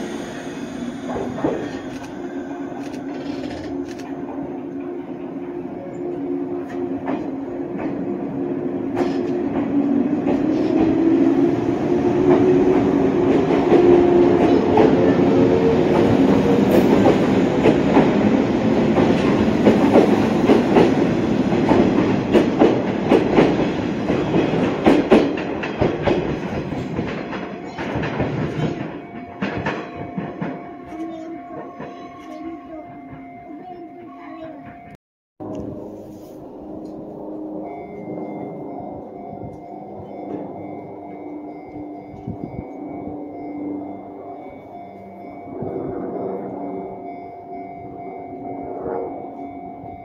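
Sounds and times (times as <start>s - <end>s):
electric train motor whine: 0.0s - 17.2s
wheels clacking over rail joints: 6.6s - 33.4s.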